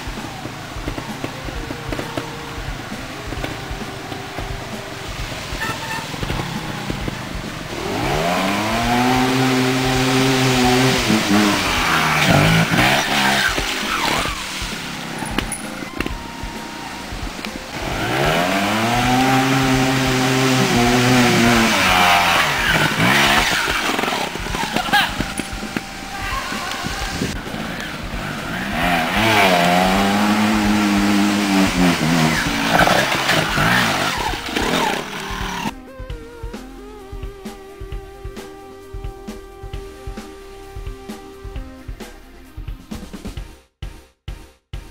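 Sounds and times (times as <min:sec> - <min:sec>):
motorcycle engine revving: 0:00.0 - 0:35.8.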